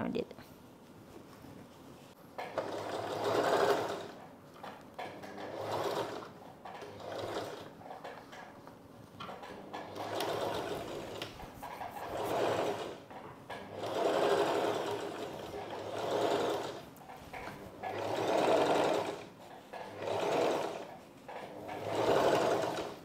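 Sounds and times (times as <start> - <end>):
sewing machine stitching: 2.4 - 8.6, 9.2 - 23.0.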